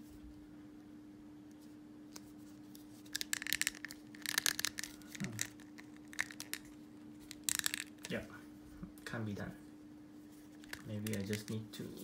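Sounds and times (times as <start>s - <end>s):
plastic parts creaking and clicking: 3.1s - 6.7s.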